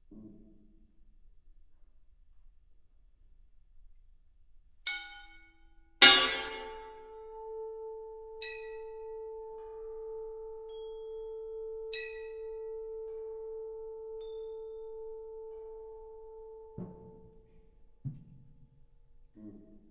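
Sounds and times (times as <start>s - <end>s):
bell-like strikes: 6.0s - 7.2s
bright metallic strike: 6.0s - 7.2s
orchestra holding a tone: 6.0s - 7.2s.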